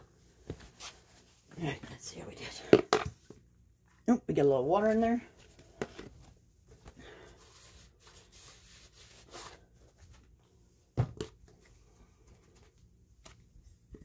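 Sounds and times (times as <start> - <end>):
hands rustling and rubbing: 6.2 - 10.4.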